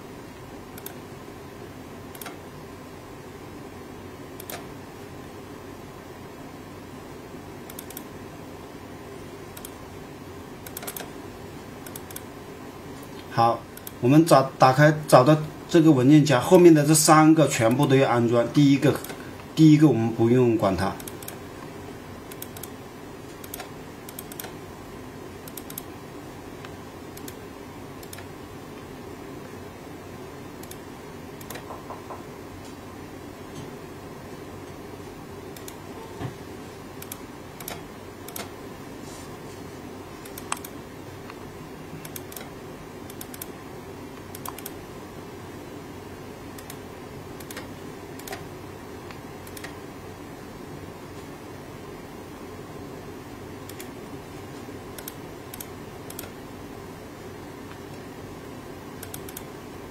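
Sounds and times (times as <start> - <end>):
steady low hum: 0.0 - 59.9
computer mouse clicking: 0.7 - 1.0, 2.1 - 2.4, 4.4 - 4.7, 7.7 - 8.1, 9.5 - 9.8, 10.6 - 11.1, 11.8 - 12.3, 13.1 - 14.0, 21.0 - 21.4, 22.3 - 24.6, 25.4 - 25.9, 26.6 - 27.4, 28.0 - 28.3, 30.6 - 30.8, 31.4 - 31.8, 35.5 - 35.9, 37.0 - 38.6, 40.2 - 41.4, 42.0 - 43.6, 44.2 - 44.8, 46.6 - 46.8, 47.4 - 48.5, 49.1 - 49.8, 53.6 - 54.0, 55.0 - 56.4, 59.0 - 59.5.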